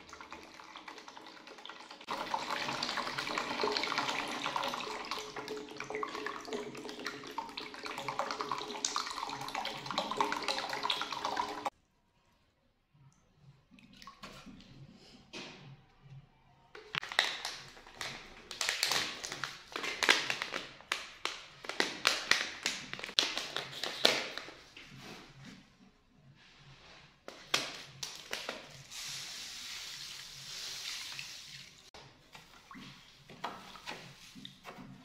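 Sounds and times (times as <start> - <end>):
salt pouring hiss: 28.8 - 31.8.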